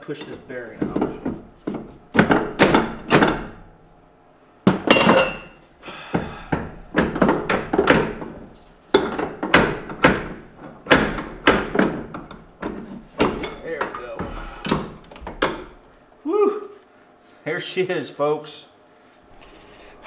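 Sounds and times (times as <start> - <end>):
metal knocks and clanks: 0.0 - 3.7, 4.7 - 5.6, 6.2 - 15.8.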